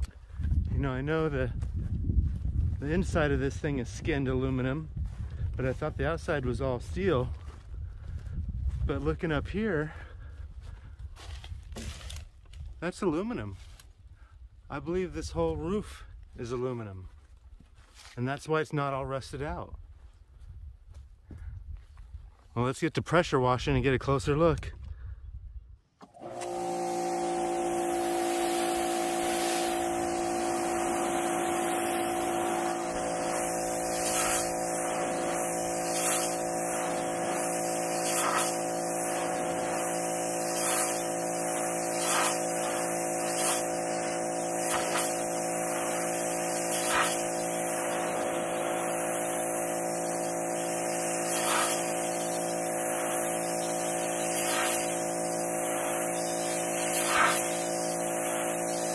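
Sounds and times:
pressure washer motor hum: 0:26.0 - 0:58.9
water jet hissing: 0:26.5 - 0:58.9.

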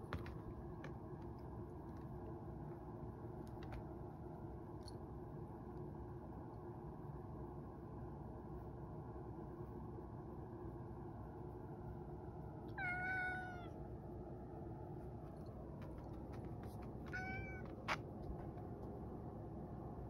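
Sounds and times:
cat meowing: 0:12.7 - 0:13.8, 0:17.0 - 0:17.8.

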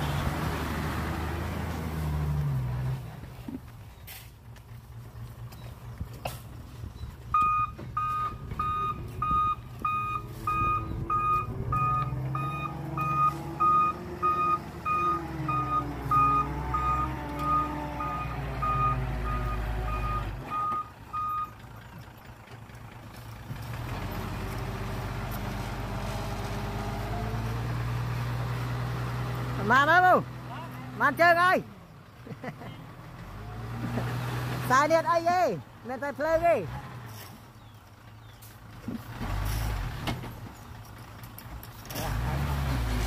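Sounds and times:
diesel engine revving: 0:00.0 - 0:03.4, 0:07.3 - 0:35.2, 0:35.8 - 0:43.0
reversing alarm beeping: 0:07.3 - 0:21.5.

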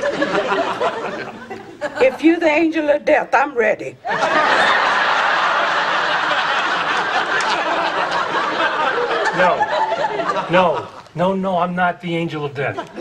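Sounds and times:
audience laughing: 0:00.0 - 0:02.4, 0:04.0 - 0:11.2, 0:12.6 - 0:13.0.

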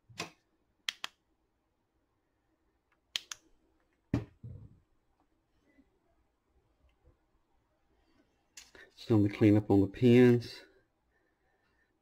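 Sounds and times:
sharp clicks: 0:00.2 - 0:01.2, 0:02.9 - 0:03.5.

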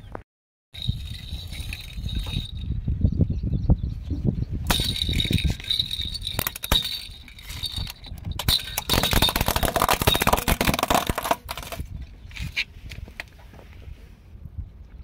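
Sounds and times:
plastic rattle jingling: 0:00.8 - 0:02.7, 0:04.7 - 0:11.9
plastic cracking under tyre: 0:08.8 - 0:11.9.

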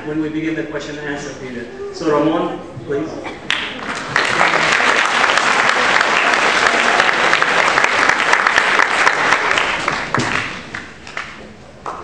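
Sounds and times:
crowd applauding: 0:03.5 - 0:12.0.

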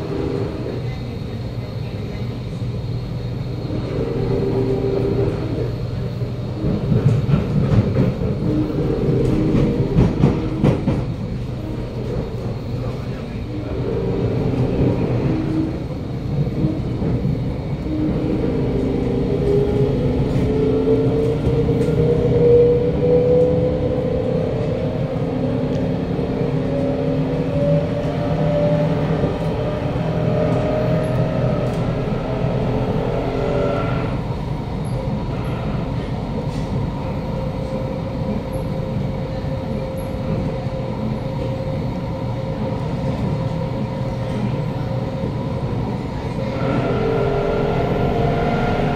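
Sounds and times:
train wheels rumbling on track: 0:00.0 - 0:48.9
train traction motor whine: 0:02.5 - 0:36.6, 0:45.9 - 0:48.9.

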